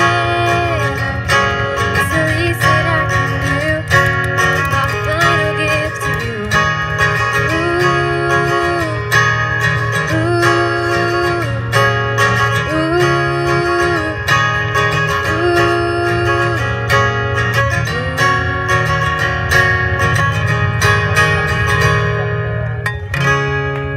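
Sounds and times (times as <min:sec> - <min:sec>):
woman singing: 0:00.0 - 0:19.0
strummed acoustic guitar: 0:00.0 - 0:23.9.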